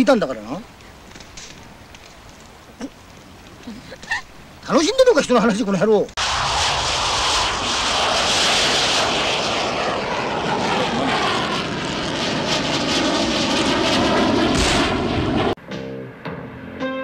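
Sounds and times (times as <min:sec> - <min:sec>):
aircraft engine flying overhead: 0:06.2 - 0:16.2.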